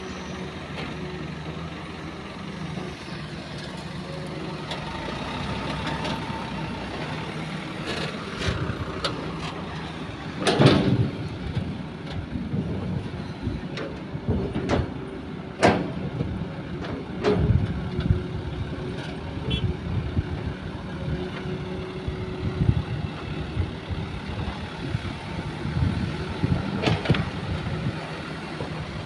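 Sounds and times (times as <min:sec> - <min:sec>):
diesel engines running: 0:00.0 - 0:29.0.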